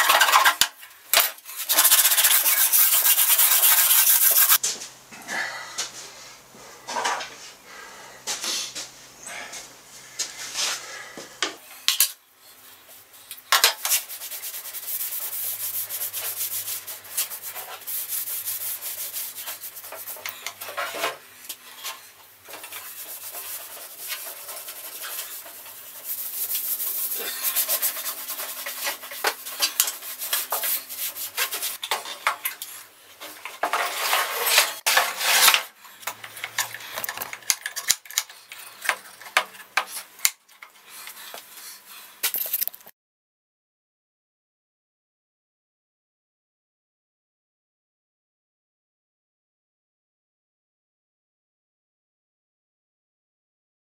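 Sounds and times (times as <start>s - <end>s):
cloth scrubbing on metal: 1.5s - 4.6s, 13.8s - 20.3s, 22.5s - 31.8s.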